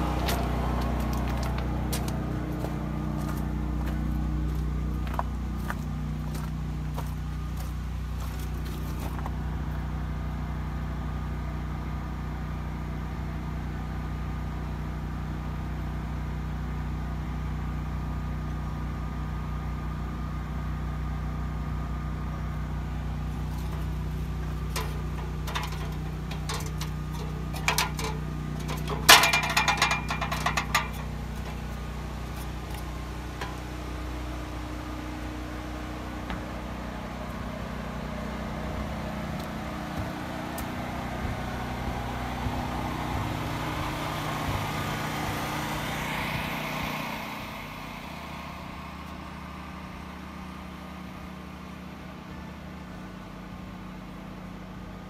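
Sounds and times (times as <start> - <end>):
diesel tractor engine idling: 0.0 - 55.0
sharp metallic clanks and knocks: 23.4 - 34.0.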